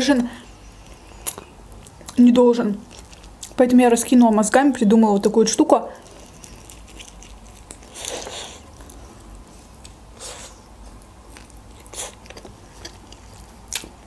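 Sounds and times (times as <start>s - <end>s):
chewing mouth sounds: 6.0s - 10.0s, 10.9s - 14.0s.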